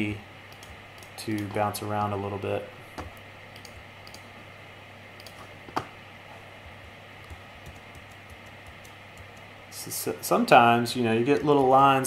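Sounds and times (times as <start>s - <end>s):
low steady hum: 0.0s - 12.0s
keyboard and mouse clicks: 0.5s - 1.6s, 3.0s - 4.3s, 5.2s - 5.9s, 7.2s - 9.5s.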